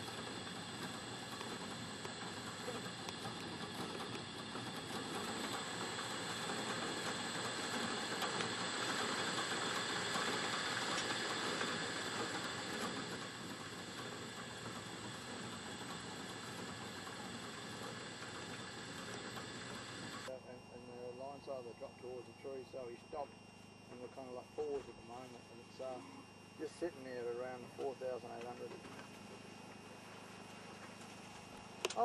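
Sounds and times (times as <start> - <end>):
motor running with hiss: 0.0 - 20.3.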